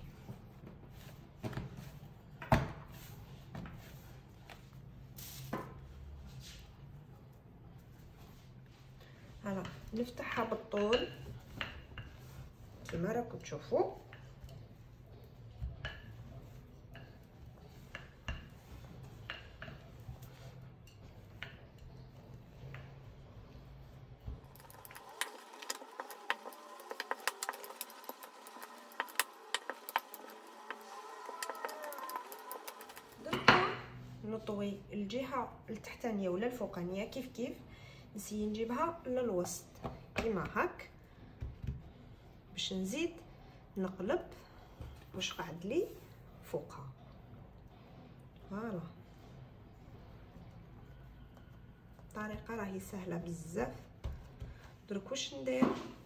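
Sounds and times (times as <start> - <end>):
rolling pin rolling dough: 0.0 - 35.2.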